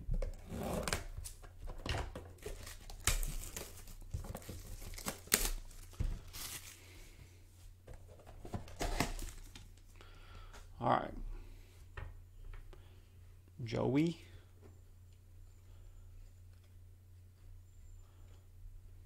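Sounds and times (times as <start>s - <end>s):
packaging tearing and crinkling: 2.4s - 6.8s.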